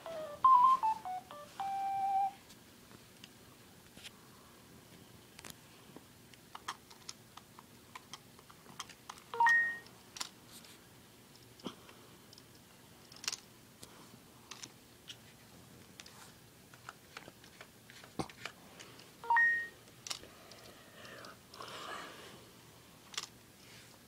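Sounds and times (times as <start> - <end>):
robot dog electronic beep: 0.0 - 2.4.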